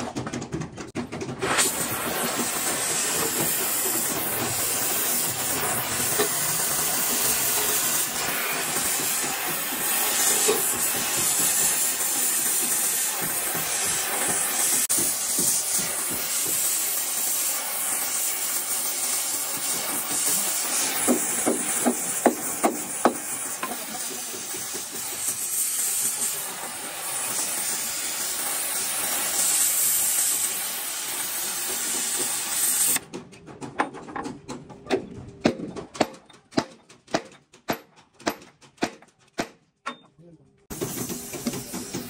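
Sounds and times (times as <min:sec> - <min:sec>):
steady hiss: 0:01.6 - 0:33.0
sharp knocks: 0:33.0 - 0:40.0.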